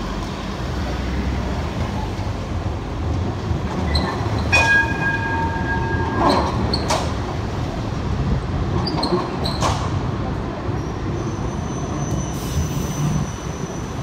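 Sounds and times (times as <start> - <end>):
low rumble of tram: 0.0 - 14.0
street traffic: 0.0 - 14.0
tram wheels squealing: 3.8 - 7.6, 8.7 - 14.0.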